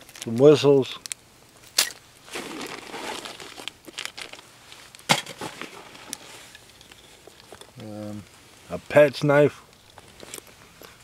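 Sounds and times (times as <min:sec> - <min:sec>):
sharp plastic crackles: 0:01.0 - 0:06.2
plastic packaging crinkling: 0:01.8 - 0:07.8.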